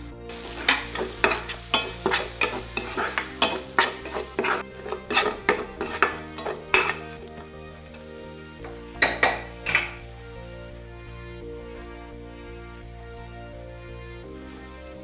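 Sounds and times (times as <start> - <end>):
oil sizzling: 0.2 - 12.9
metal spoon scraping a pan: 0.3 - 7.5, 8.6 - 10.0.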